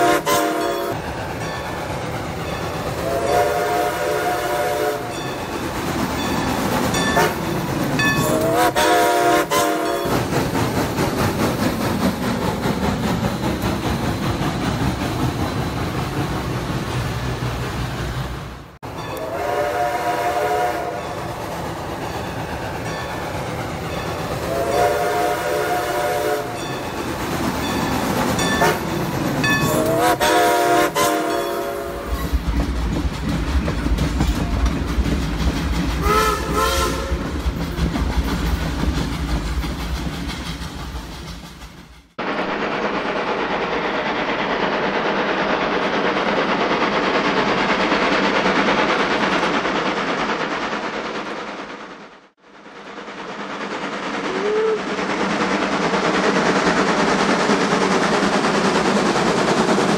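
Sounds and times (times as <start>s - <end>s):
toy train horn blasts: 0.0s - 1.0s, 3.0s - 5.1s, 7.1s - 7.4s, 8.2s - 10.1s, 19.1s - 21.1s, 24.5s - 26.6s, 28.5s - 28.9s, 29.6s - 32.2s, 36.0s - 37.2s.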